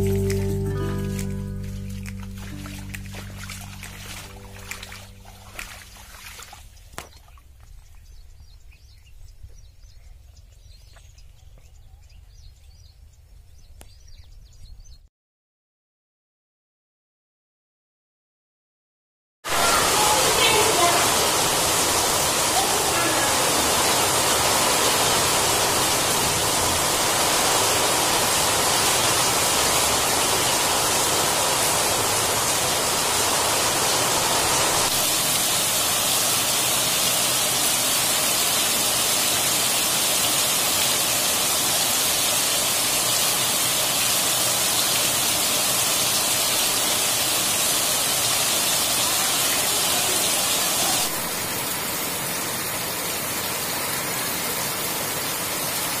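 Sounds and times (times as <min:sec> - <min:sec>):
heavy rain splashing on pavement: 0:19.5 - 0:56.0.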